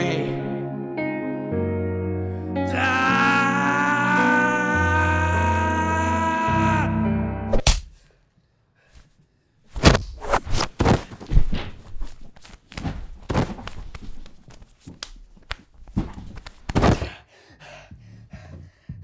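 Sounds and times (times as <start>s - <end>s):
body thrashing on floor: 9.7s - 17.1s.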